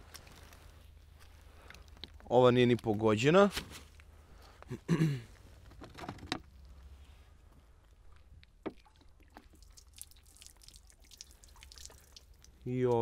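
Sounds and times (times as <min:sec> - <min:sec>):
water trickling onto wooden bench: 0:08.0 - 0:13.0.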